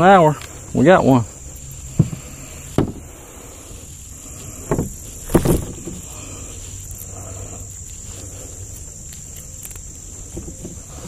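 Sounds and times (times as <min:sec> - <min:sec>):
high insect trill: 0:00.0 - 0:11.0
dull knocks: 0:02.0 - 0:03.0, 0:04.6 - 0:06.0.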